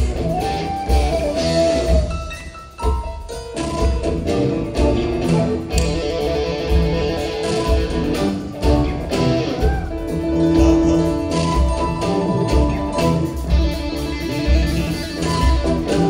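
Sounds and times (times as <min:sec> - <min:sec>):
bass guitar: 0:00.0 - 0:16.0
drums with steady pulse: 0:00.0 - 0:16.0
electric guitars: 0:00.0 - 0:16.0.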